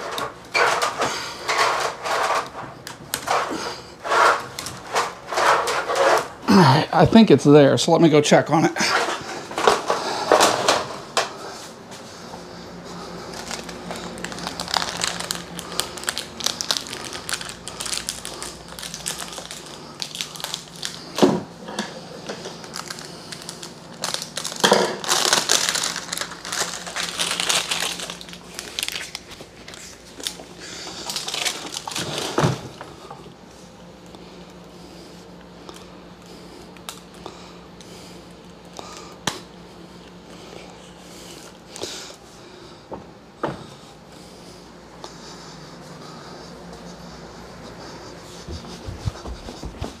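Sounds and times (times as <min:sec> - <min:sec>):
hands rustling and scraping wiring: 0:00.0 - 0:06.4, 0:12.9 - 0:32.9.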